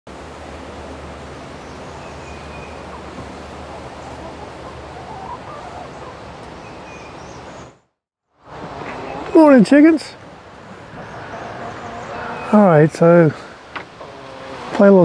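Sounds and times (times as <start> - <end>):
steady hiss: 12.0 - 15.0.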